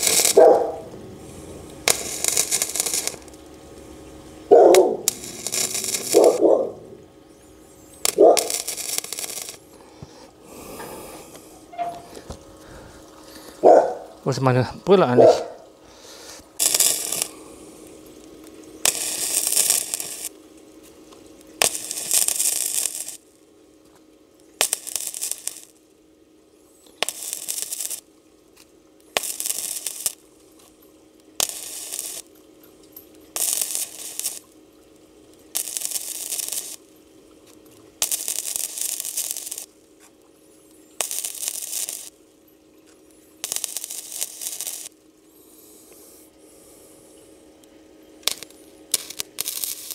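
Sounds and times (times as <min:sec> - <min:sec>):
low hum: 0:00.0 - 0:22.1
arc welding sizzling and crackling: 0:00.0 - 0:49.9.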